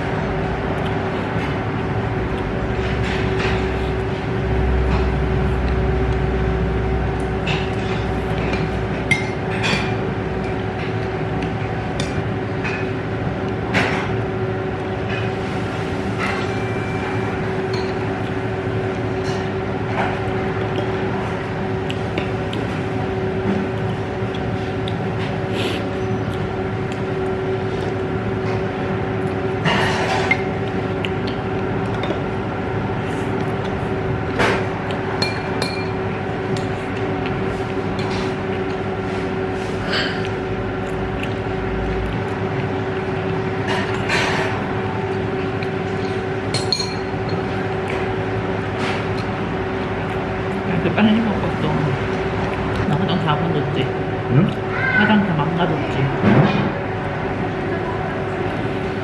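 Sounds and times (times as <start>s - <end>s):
machine hum: 0.0s - 59.0s
chopsticks clinking on dishes: 46.0s - 47.5s.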